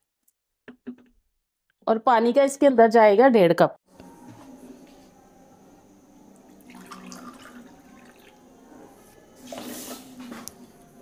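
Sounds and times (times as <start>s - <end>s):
water pouring into a pot: 6.5s - 8.5s.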